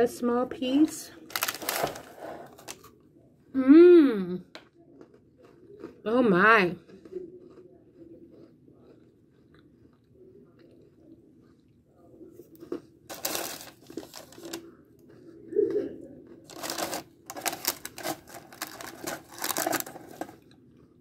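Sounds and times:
parchment paper rustling: 1.3 - 2.8, 13.1 - 14.6, 16.5 - 20.4.

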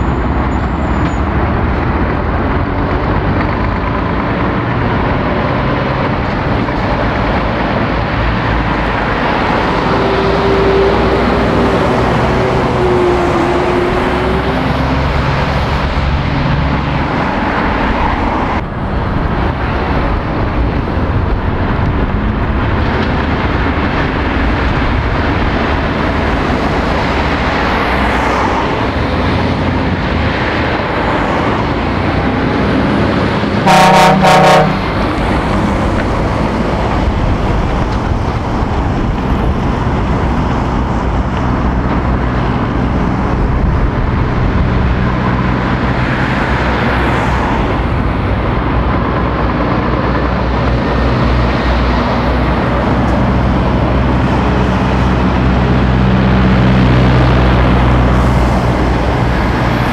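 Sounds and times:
traffic on roundabout: 0.0 - 59.9
vehicle horn toots: 33.6 - 34.9.

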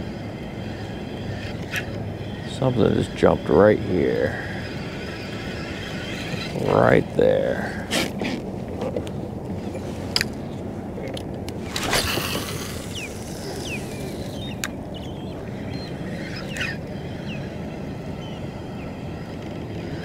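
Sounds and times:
faint short bird calls: 12.9 - 17.6.

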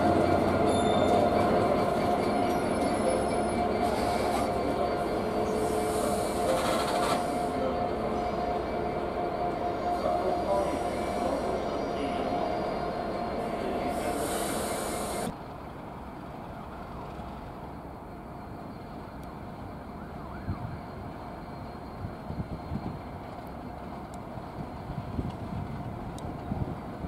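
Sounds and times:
wheel squeal: 0.0 - 15.3
diesel locomotive engine: 0.0 - 27.0
low locomotive rumble: 0.0 - 27.0.

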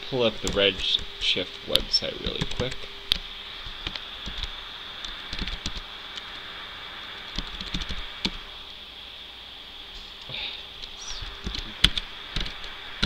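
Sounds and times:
steady high-pitched hiss: 0.0 - 13.0
keyboard typing: 2.2 - 2.8, 3.8 - 5.8, 7.3 - 8.4.

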